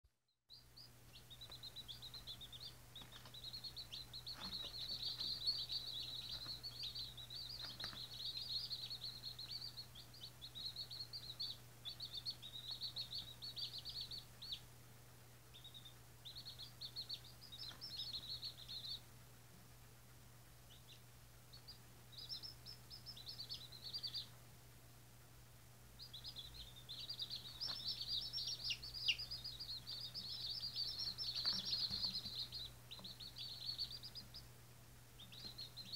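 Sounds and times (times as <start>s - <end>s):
chicks peeping: 0.5s - 35.9s.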